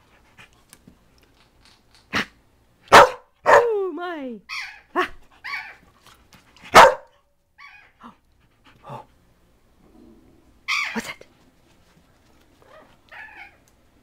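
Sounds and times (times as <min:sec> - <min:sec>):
dogs barking: 0:02.9 - 0:03.7, 0:06.7 - 0:07.2
dog yips: 0:04.5 - 0:05.8, 0:07.6 - 0:08.0, 0:10.7 - 0:11.0.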